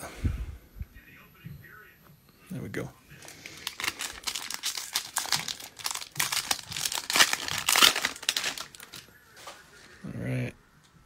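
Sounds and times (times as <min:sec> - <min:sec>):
foil wrapper tearing and crinkling: 0:03.2 - 0:09.1.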